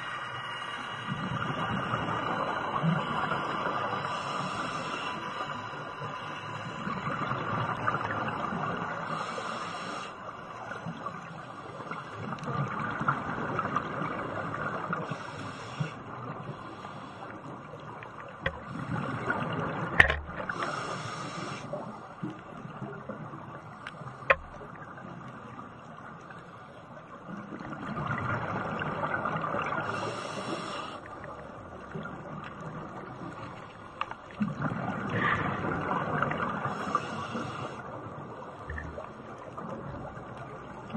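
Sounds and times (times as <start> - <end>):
regulator inhale hiss: 0.0 - 7.0, 9.0 - 10.4, 14.9 - 17.8, 20.4 - 22.1, 29.8 - 31.1, 36.6 - 38.0
rush of exhaled bubbles: 34.3 - 37.2.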